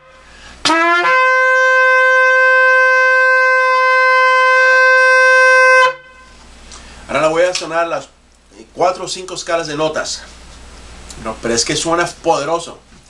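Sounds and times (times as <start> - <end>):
shofar blast: 0.0 - 6.4.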